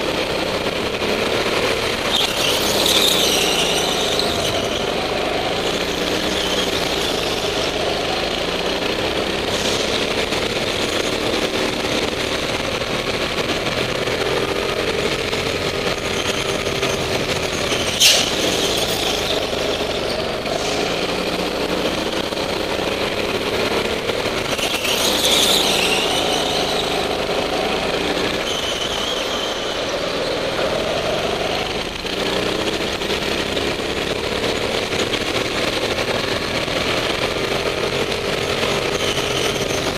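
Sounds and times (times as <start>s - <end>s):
go-kart engine revving: 0.0s - 39.9s
tyre squeal: 1.9s - 7.9s, 16.0s - 21.3s, 24.4s - 31.2s, 38.7s - 39.9s.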